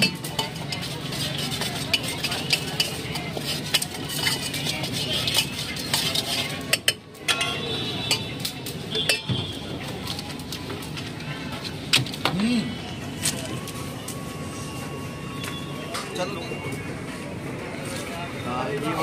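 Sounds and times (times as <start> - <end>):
metal spoon scraping and clinking bowls: 0.0 - 9.4.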